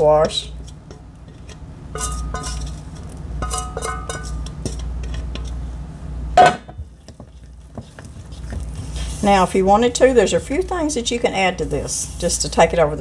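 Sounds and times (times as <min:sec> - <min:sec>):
enamel bowl clinking on bowl rim: 0:02.0 - 0:02.8, 0:03.4 - 0:04.8.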